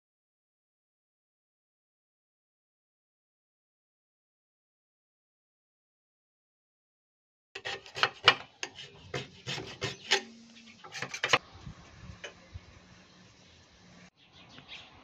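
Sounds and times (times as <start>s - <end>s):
metal scraping and knocking on wood: 7.6s - 11.4s.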